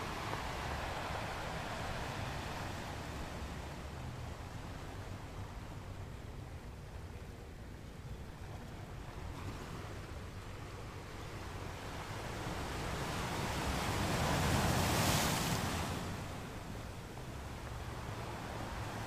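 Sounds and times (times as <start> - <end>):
rushing wind: 0.0 - 6.4.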